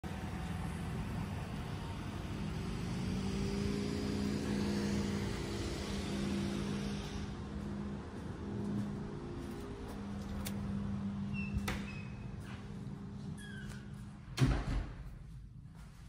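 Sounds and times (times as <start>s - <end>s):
low motor hum: 0.0s - 14.3s.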